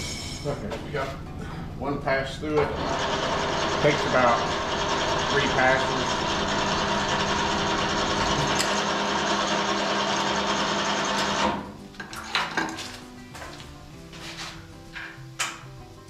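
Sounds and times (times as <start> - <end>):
boring bar humming: 0.0 - 11.7.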